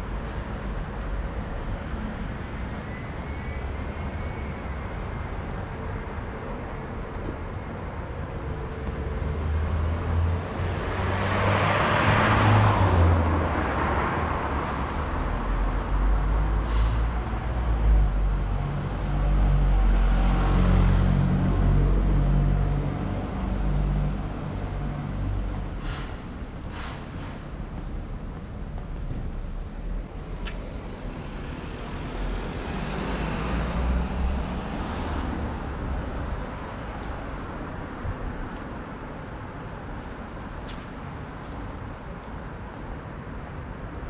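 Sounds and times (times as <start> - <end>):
heavy vehicle engine rumbling: 20.8 - 30.2.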